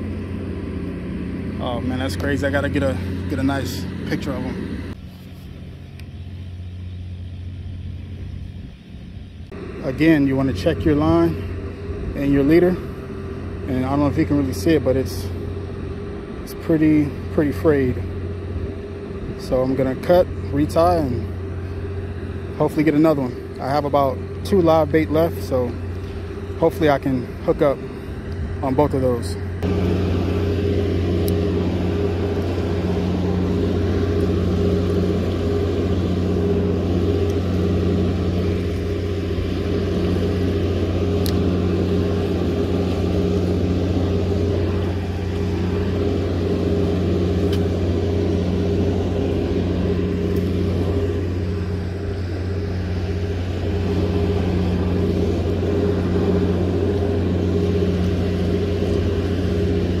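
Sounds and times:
low mechanical drone: 0.0s - 60.0s
churning water rushing: 23.8s - 60.0s.

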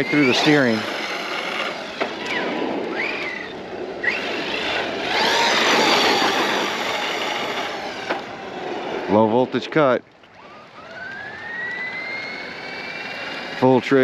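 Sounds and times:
electric motor whining: 0.0s - 9.6s, 10.3s - 14.0s
steady rushing noise: 0.0s - 9.9s.

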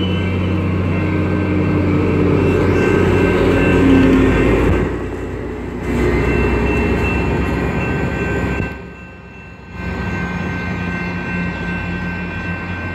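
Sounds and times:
diesel locomotive rumble: 0.0s - 12.9s.

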